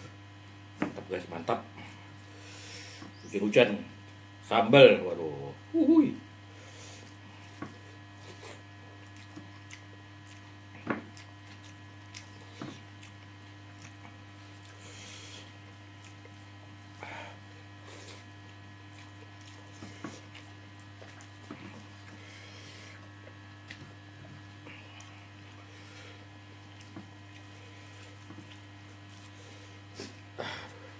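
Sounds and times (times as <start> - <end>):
steady electrical hum: 0.0 - 30.9
person chewing and smacking: 7.0 - 30.9.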